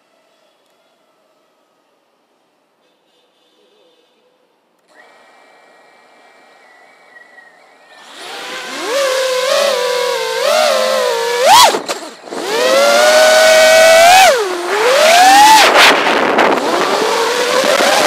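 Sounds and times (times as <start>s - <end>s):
quadcopter motors whining: 4.8s - 18.0s.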